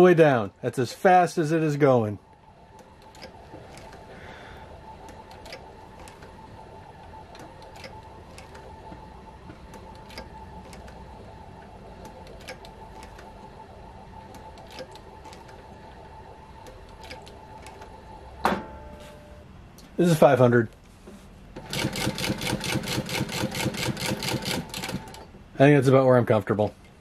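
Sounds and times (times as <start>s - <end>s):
sewing machine hum: 2.5s - 18.4s, 21.6s - 25.3s.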